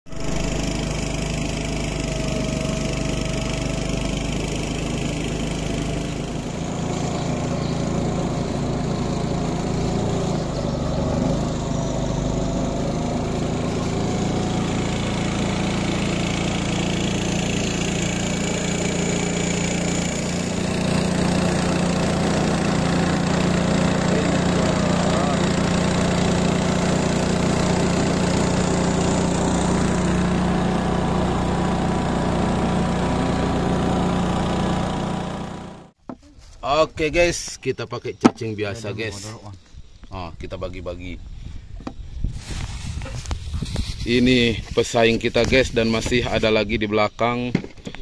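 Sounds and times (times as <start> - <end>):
motorboat engine running: 0.1 - 36.0.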